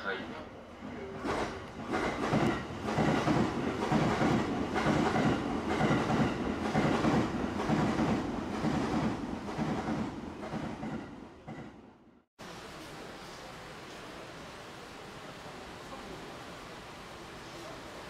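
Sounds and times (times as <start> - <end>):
train rumble: 0.0 - 11.9
train wheels clattering: 1.0 - 11.8.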